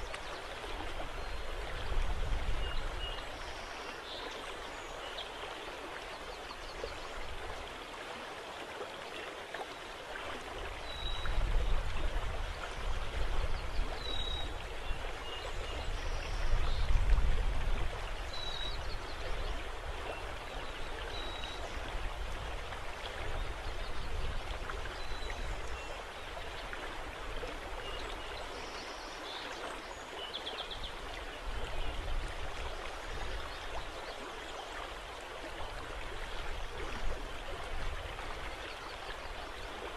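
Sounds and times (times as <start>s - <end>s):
wind rumble on microphone: 0.0s - 3.4s, 10.3s - 28.6s, 30.6s - 34.2s, 34.8s - 39.9s
rippling river water: 0.0s - 39.9s
wind: 0.0s - 39.9s.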